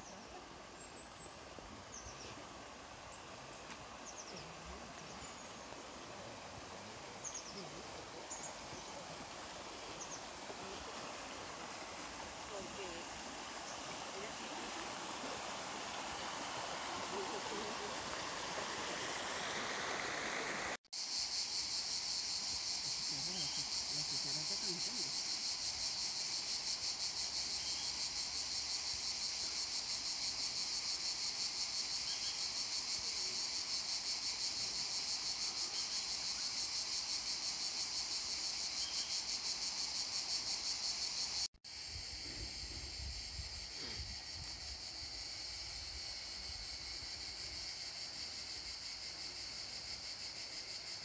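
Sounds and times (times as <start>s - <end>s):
insects shrilling: 7.2s - 20.1s.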